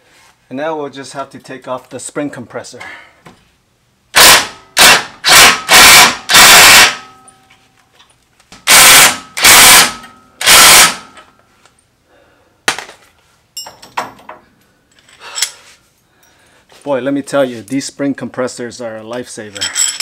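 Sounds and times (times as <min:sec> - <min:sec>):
impact wrench hammering: 0:04.2 - 0:07.4, 0:08.6 - 0:11.3.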